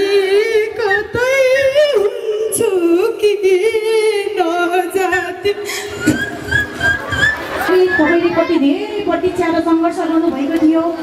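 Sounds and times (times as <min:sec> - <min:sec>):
woman singing folk song: 0:00.0 - 0:06.3.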